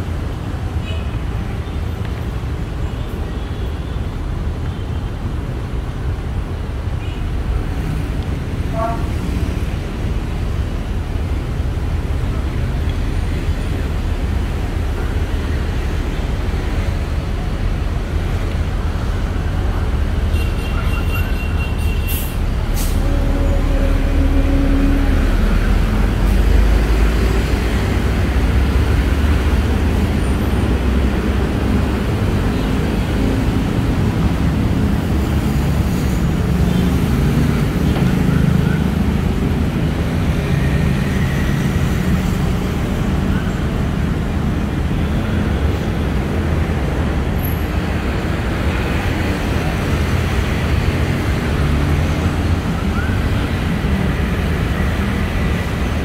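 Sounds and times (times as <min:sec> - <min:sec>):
road traffic rumble: 0:00.0 - 0:56.0.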